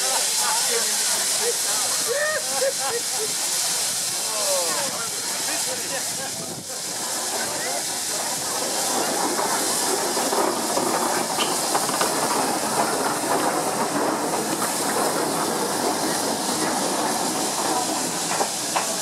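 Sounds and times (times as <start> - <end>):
steam hissing: 0.0 - 19.0.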